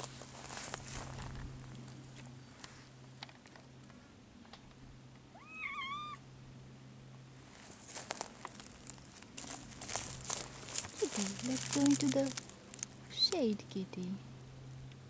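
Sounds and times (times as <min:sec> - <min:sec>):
faint crackles and clicks: 0:00.0 - 0:05.2, 0:07.4 - 0:13.5
kitten meowing: 0:05.3 - 0:06.2.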